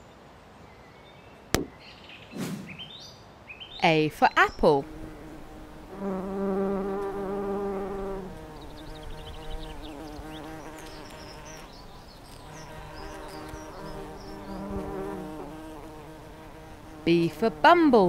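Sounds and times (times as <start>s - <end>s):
cartoon bee buzzing: 4.4s - 18.0s.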